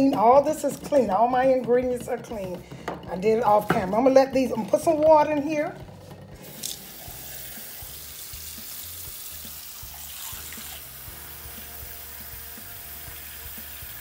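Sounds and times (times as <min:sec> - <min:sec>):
faucet running into saucepan: 0:06.4 - 0:14.0.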